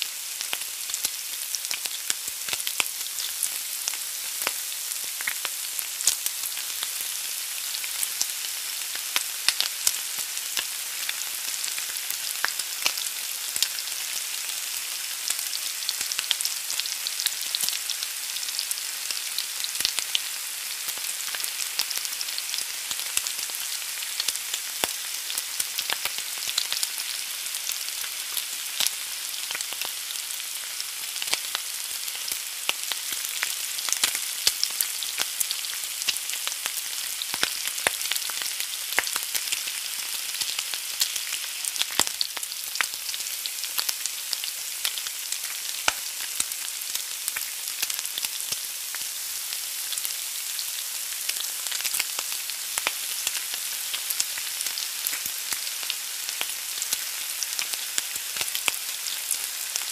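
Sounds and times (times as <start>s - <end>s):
egg sizzling in a pan: 0.0s - 59.9s
small crackles and pops: 31.2s - 39.8s, 40.4s - 49.2s, 51.3s - 59.9s.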